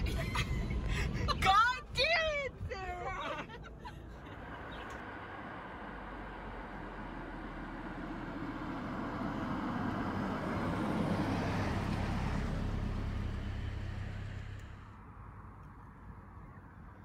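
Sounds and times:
car passing by: 4.3s - 15.5s.

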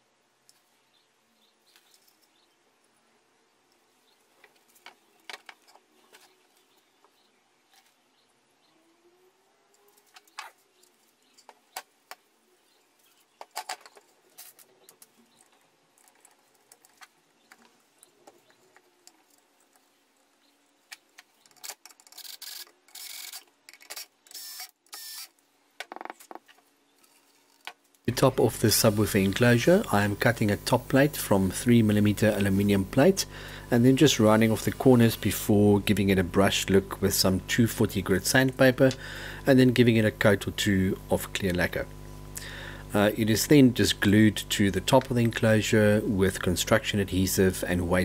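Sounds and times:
cordless drill driving screws: 24.3s - 25.4s.

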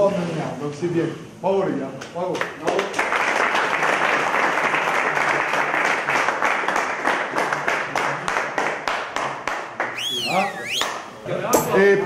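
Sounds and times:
people clapping: 2.0s - 11.1s.

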